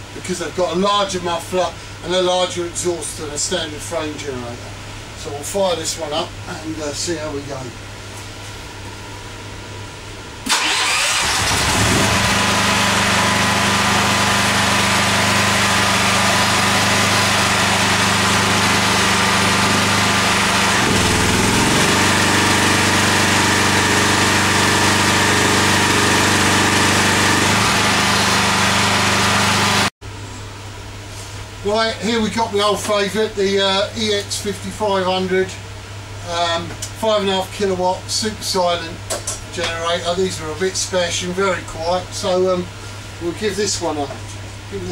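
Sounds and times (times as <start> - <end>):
generator running: 10.4 - 29.9.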